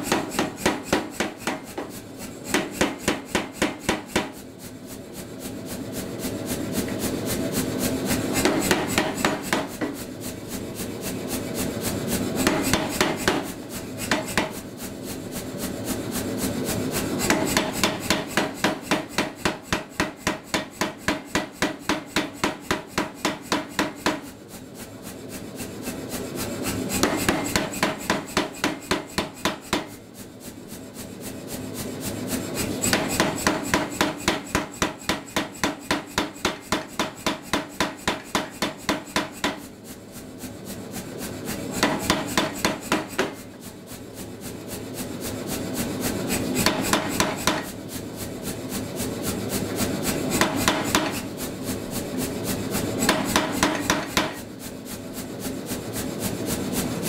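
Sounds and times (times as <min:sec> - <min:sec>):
power hammer blows on steel: 0:00.0 - 0:04.4, 0:52.8 - 0:54.5.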